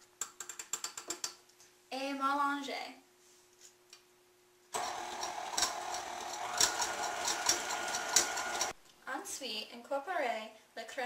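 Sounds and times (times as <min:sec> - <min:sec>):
stand mixer running: 0:04.8 - 0:08.7.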